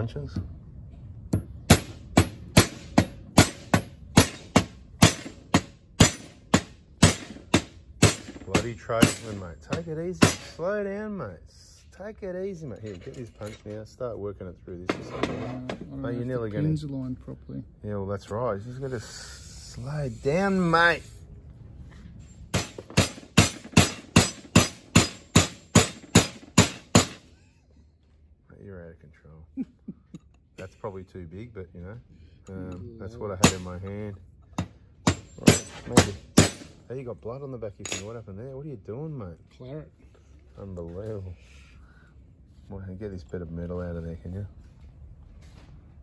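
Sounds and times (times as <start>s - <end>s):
hammer striking metal punch: 1.3s - 10.6s, 22.5s - 27.3s, 33.4s - 33.9s, 34.5s - 36.8s.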